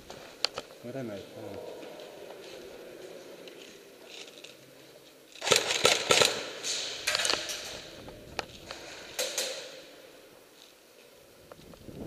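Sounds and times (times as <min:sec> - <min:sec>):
sharp clicks and knocks: 0:07.0 - 0:09.7.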